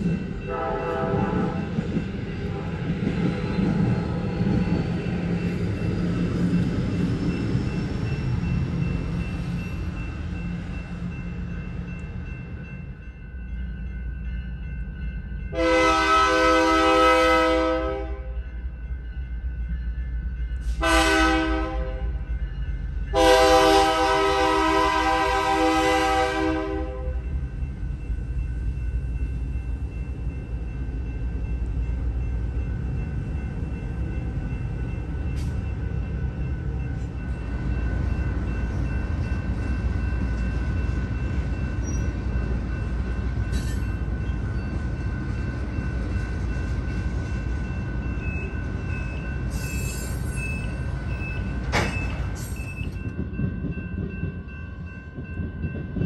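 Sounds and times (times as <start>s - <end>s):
freight train rumbling past: 0.0s - 56.0s
locomotive horn blasts: 0.5s - 1.6s, 15.5s - 18.3s, 20.8s - 22.1s, 23.2s - 27.2s.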